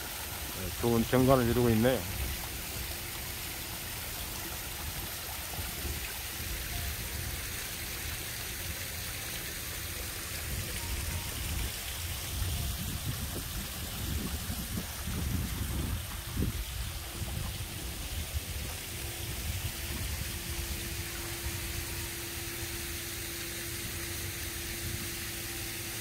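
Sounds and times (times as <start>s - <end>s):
water rushing in pond feature: 0.0s - 26.0s
wind rumbling on microphone: 10.4s - 22.1s.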